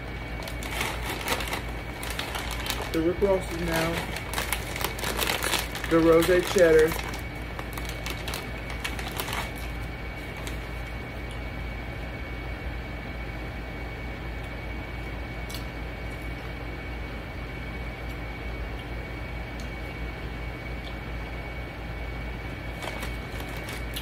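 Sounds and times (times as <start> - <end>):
room noise hum: 0.0 - 24.0
chip bag crinkling: 0.2 - 11.0, 22.6 - 24.0
chips being eaten: 0.4 - 10.8, 22.7 - 24.0.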